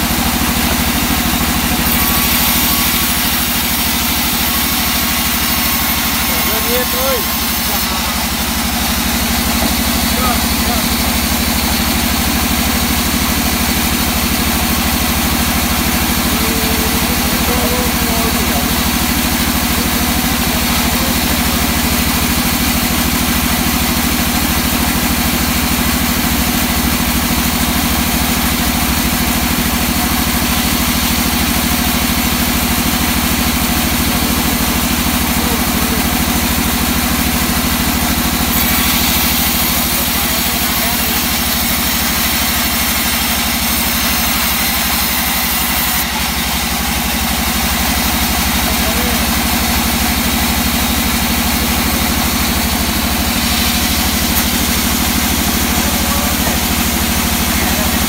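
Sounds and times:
band saw humming: 0.0 - 58.0
saw blade hissing through wood: 0.2 - 12.2, 37.6 - 46.4.

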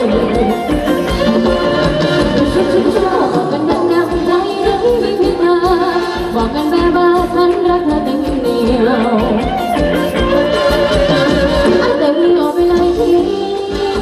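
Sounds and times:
person singing with wavering voice: 0.0 - 14.0
steady drum beat: 0.0 - 14.0.

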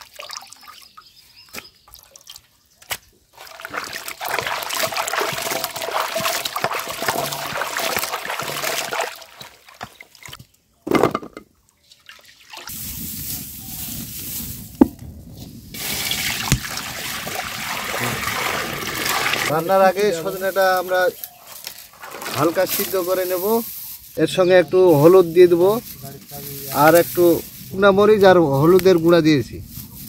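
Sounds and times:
hands splashing in water: 1.5 - 10.4, 15.8 - 19.6, 21.7 - 23.1
water pouring into metal pot: 3.4 - 9.8, 15.8 - 20.8, 21.9 - 23.2.

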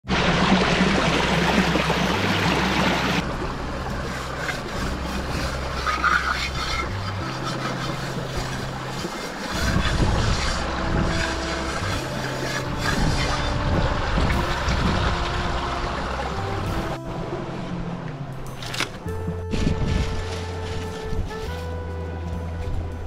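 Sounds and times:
stream splashing over rocks: 0.0 - 17.0.

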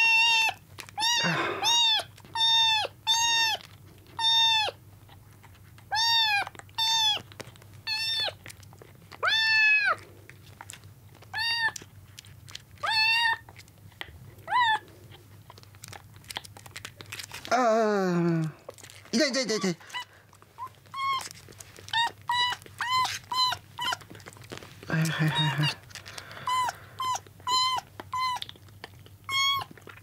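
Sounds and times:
kitten meowing: 0.0 - 3.6, 4.2 - 4.8, 5.9 - 7.2, 7.9 - 8.4, 9.2 - 10.0, 11.3 - 11.8, 12.8 - 13.4, 14.4 - 14.8, 19.5 - 24.0, 26.4 - 28.5, 29.2 - 29.8.

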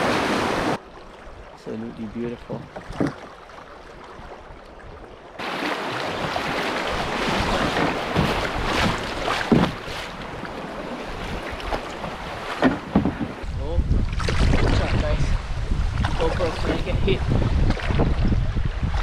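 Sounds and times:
water rushing and splashing: 0.0 - 19.0
wind buffeting microphone: 6.2 - 19.0.

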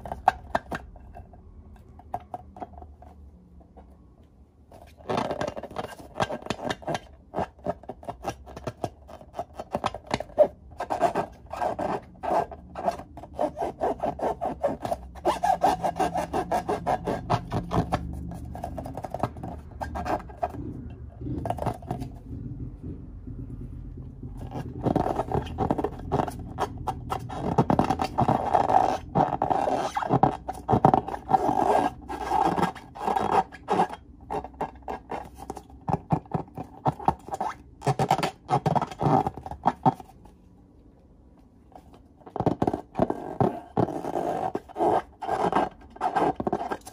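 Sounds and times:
hands rubbing rubber balloons: 4.7 - 40.4, 41.8 - 46.9.

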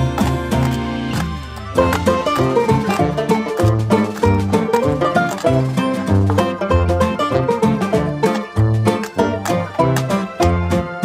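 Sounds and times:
plucked strings music with beat: 0.0 - 11.0.

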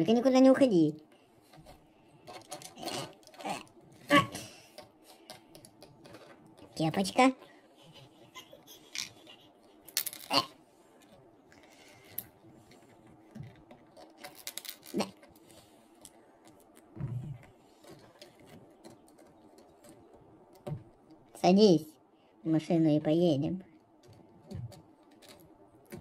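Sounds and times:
plastic bricks clicking: 2.3 - 3.8, 4.6 - 6.8, 12.1 - 16.9.

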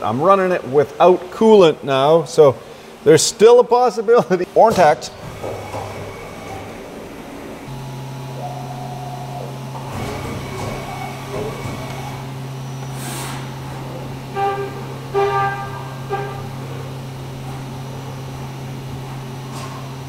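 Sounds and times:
machine hum: 4.4 - 20.0
loud tonal honks: 14.2 - 16.9.

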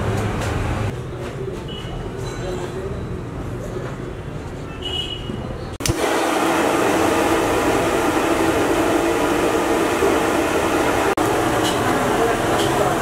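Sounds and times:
gas burner rushing: 5.8 - 13.0.

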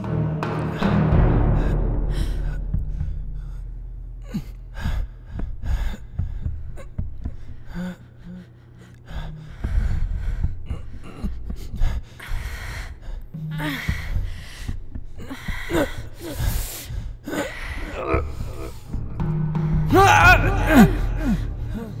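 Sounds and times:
person gasping breaths: 1.6 - 19.0, 19.6 - 22.0.

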